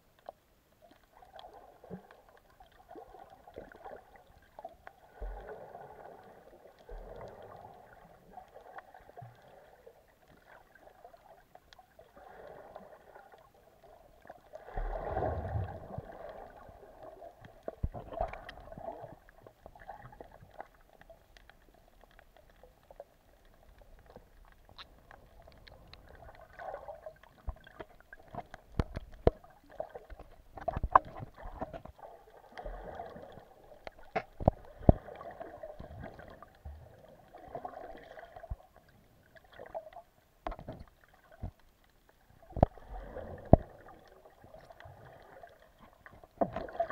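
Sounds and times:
water swirling underwater: 0.1 - 46.9
sharp clicks and knocks: 27.5 - 29.4.

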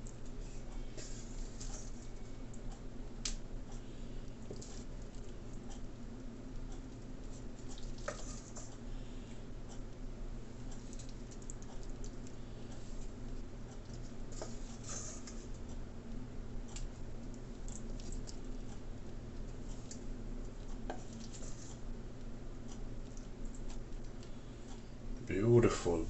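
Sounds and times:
low room hum: 0.0 - 26.0
faint light clicks and scratches: 19.4 - 21.8.

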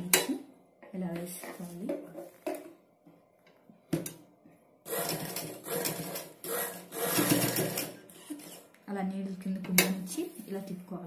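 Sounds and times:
sewing machine stitching: 4.9 - 8.7.

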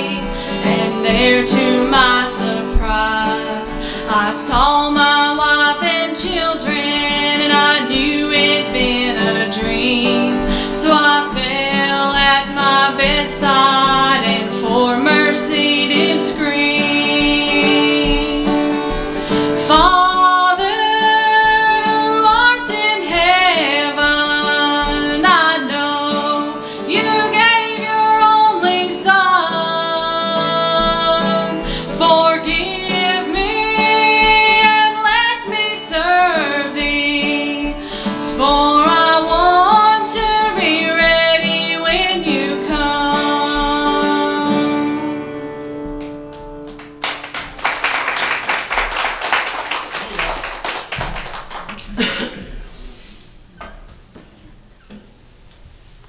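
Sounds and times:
woman singing: 0.0 - 46.0
acoustic guitar strumming: 0.0 - 51.2.

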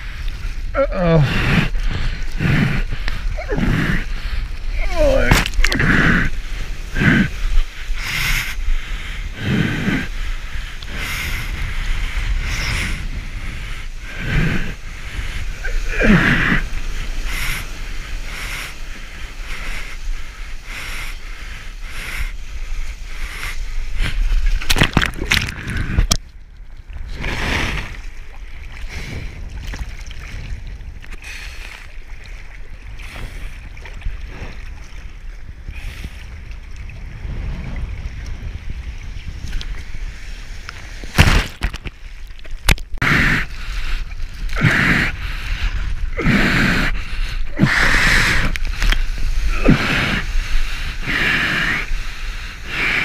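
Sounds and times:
sea water splashing against camera: 22.3 - 44.7.

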